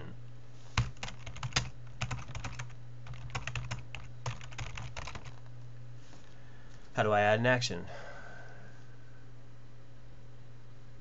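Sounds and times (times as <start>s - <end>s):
steady low hum: 0.0s - 11.0s
typing on a keyboard: 0.8s - 5.5s.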